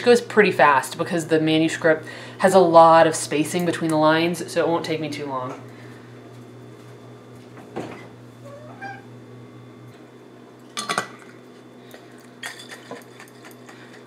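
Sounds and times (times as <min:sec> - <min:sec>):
cat meowing: 0:08.4 - 0:09.1.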